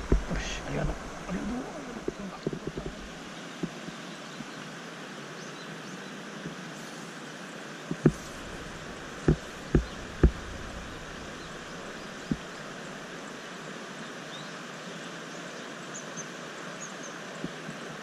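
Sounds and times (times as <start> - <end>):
low thumps: 0.0 - 3.2, 7.9 - 12.9
stream water flowing: 0.0 - 18.0.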